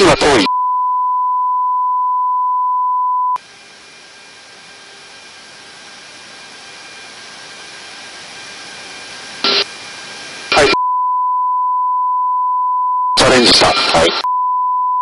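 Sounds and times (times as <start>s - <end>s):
aircraft rushing hiss: 3.4s - 10.8s
faint steady hums: 3.4s - 10.8s.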